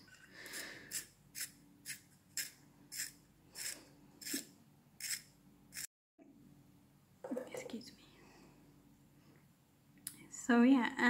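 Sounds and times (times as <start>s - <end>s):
pencil sharpening scrapes: 0.4s - 5.9s.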